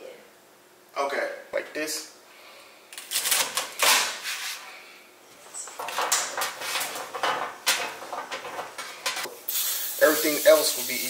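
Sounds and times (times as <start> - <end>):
asparagus rustling on a metal pan: 5.4 - 9.3.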